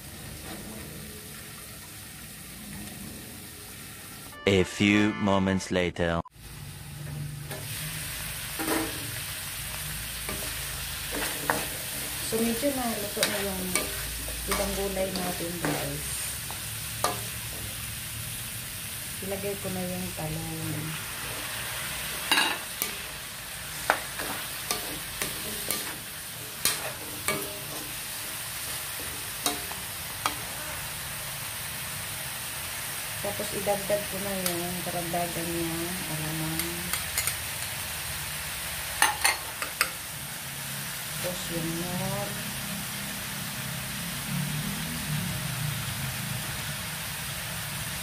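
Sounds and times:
vegetables sizzling in a wok: 0.0s - 4.4s, 6.4s - 48.0s
metal utensil scraping a pan: 8.5s - 9.2s, 10.2s - 16.3s, 21.3s - 30.9s.

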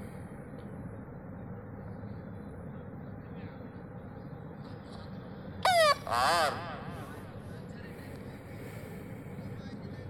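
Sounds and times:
crowd murmur: 6.5s - 10.0s.

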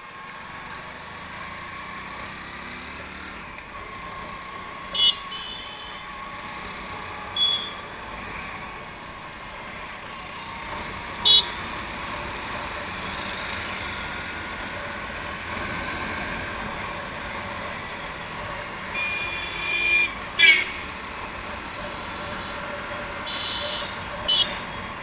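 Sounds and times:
road traffic noise: 0.0s - 25.0s
vehicle horn toot: 4.9s - 6.0s, 7.4s - 7.8s, 11.2s - 11.6s, 18.9s - 20.9s, 23.2s - 24.8s.

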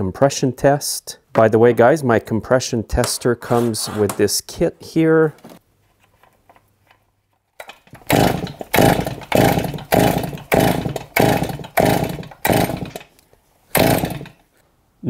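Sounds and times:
chainsaw pull starter cranking: 7.6s - 14.4s.

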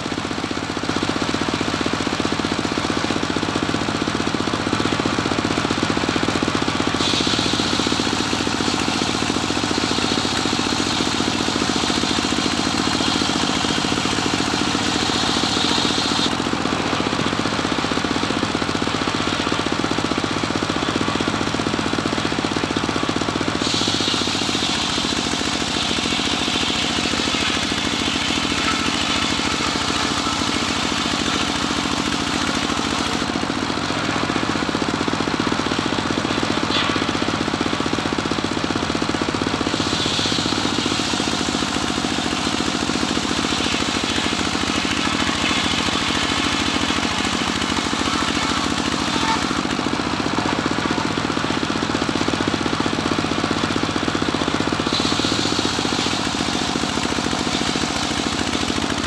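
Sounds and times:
sawmill engine running: 0.0s - 59.0s
saw blade cutting wood: 6.8s - 17.7s, 23.0s - 34.6s, 35.9s - 37.4s, 39.6s - 51.8s, 54.8s - 59.0s.

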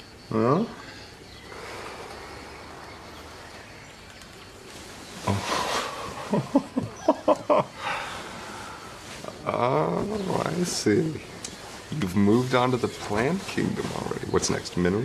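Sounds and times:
faint background hiss: 0.0s - 15.0s
person breathing: 0.9s - 2.6s, 7.8s - 9.0s
non-word vocal sounds: 5.2s - 6.5s.

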